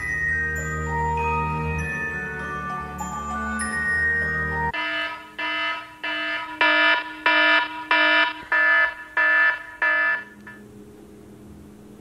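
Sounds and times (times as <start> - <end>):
phone alarm buzzy beeps: 4.8 - 10.6.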